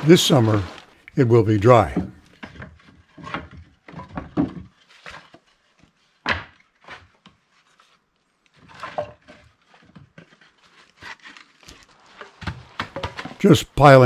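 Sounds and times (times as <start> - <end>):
firewood knocking and clattering: 1.6 - 5.4, 6.2 - 7.0, 8.6 - 10.4, 12.2 - 13.5.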